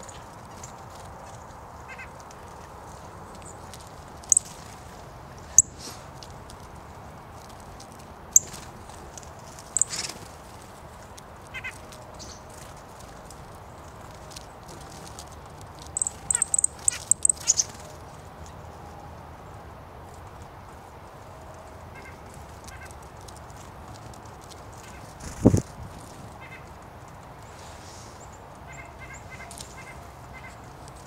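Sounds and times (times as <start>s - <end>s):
songbird chips: 0.0s - 18.6s.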